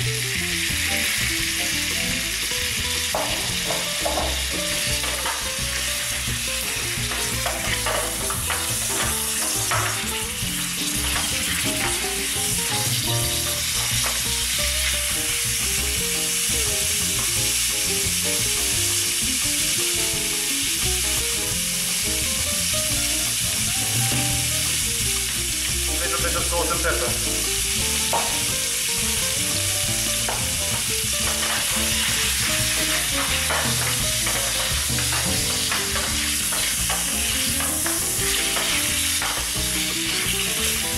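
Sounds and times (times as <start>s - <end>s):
meat sizzling in hot oil: 0.0s - 40.9s
wooden spatula scraping tin: 7.0s - 14.2s, 31.2s - 40.9s.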